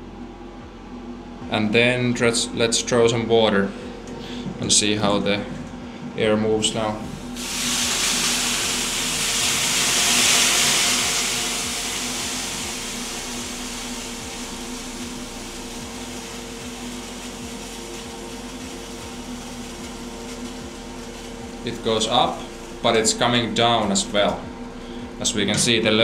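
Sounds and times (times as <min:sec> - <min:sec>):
exhaust fan hum: 0:00.0 - 0:26.0
water hissing on hot stones: 0:07.0 - 0:26.0.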